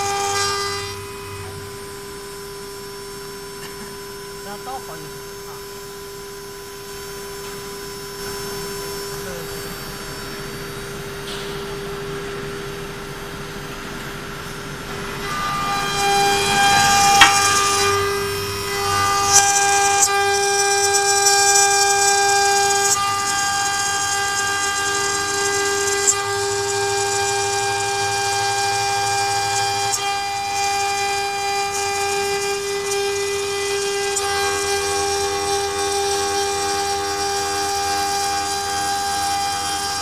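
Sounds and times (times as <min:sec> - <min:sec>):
router spindle whine: 0:00.0 - 0:40.0
cutter screeching in metal: 0:07.7 - 0:11.9, 0:15.0 - 0:40.0.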